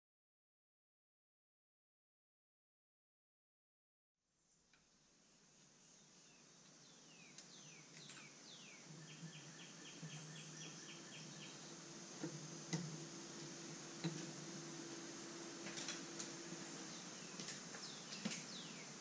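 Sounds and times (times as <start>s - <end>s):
steady high hiss: 4.3s - 19.0s
birds singing: 5.8s - 19.0s.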